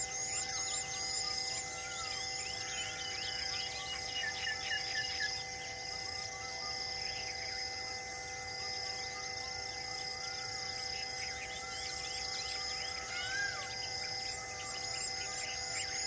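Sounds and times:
high insect drone: 0.0 - 16.0.

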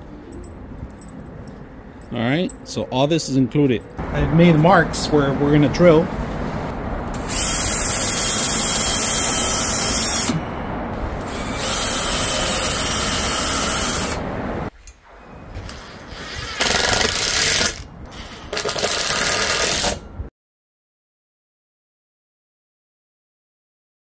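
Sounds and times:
cordless drill boring into wood: 7.2 - 10.4, 11.3 - 14.2, 16.1 - 20.0.

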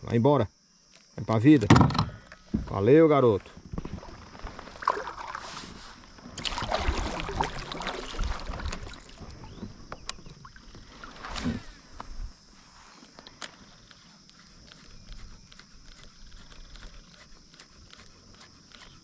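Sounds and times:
water splashing against kayak: 3.7 - 12.4.

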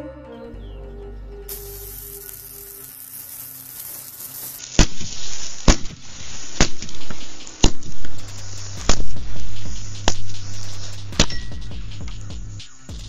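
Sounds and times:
crackling: 1.5 - 13.0
hissing sparks: 1.5 - 13.0
firecracker bangs: 4.5 - 12.6.

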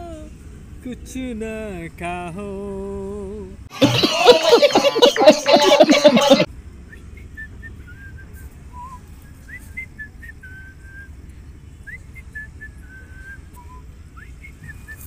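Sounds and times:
steady low rumble: 6.4 - 15.0
whistled notes: 6.9 - 11.2, 11.8 - 15.0.

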